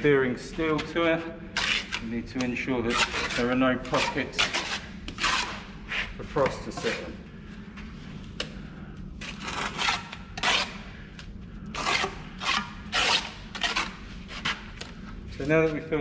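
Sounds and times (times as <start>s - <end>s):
trowel scraping mortar: 1.6s - 2.1s, 2.8s - 6.1s, 9.3s - 10.8s, 11.8s - 14.6s.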